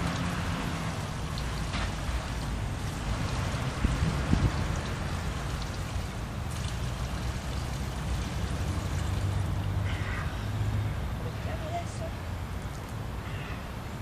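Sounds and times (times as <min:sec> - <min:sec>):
tap water splashing on stone: 0:01.2 - 0:09.8.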